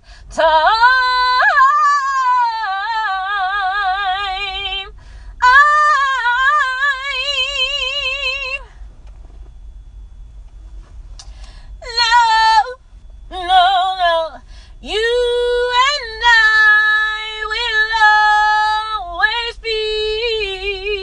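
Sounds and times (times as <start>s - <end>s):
woman singing unaccompanied: 0.3s - 8.7s, 11.8s - 21.0s.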